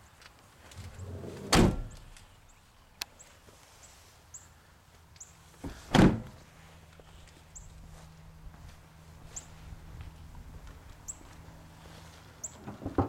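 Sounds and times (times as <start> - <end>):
pickup doors slamming: 1.0 - 2.1.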